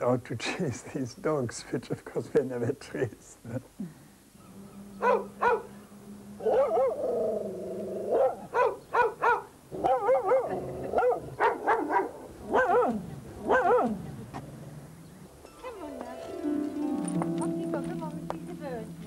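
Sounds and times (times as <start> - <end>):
dogs barking: 5.0 - 5.8, 6.4 - 7.2, 8.1 - 14.0.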